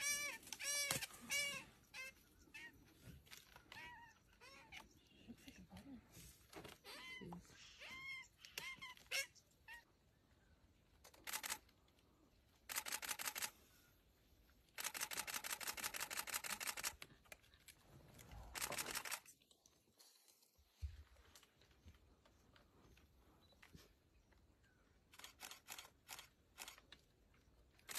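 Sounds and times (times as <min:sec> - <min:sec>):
camera shutter clicks: 0:11.2 - 0:11.6, 0:12.7 - 0:13.5, 0:14.8 - 0:17.0, 0:18.6 - 0:19.3.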